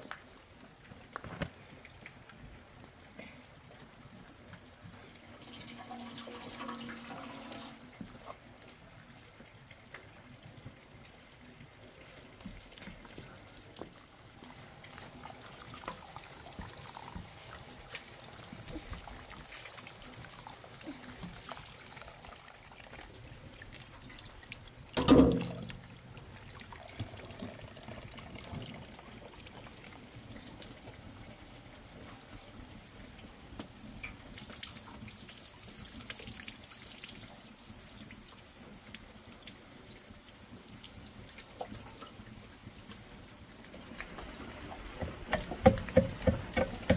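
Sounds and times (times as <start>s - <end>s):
water sloshing in a basin: 14.2s - 30.0s.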